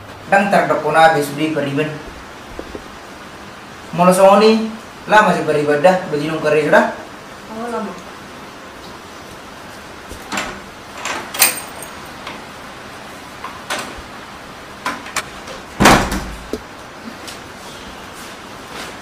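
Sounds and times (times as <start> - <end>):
light knocks and thumps: 2.1 - 3.0
wooden door slamming: 15.8 - 16.5.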